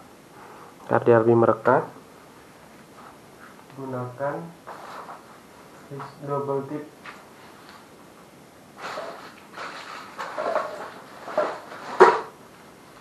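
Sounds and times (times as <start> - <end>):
rustling handling noises: 4.6 - 6.4, 7.0 - 13.0.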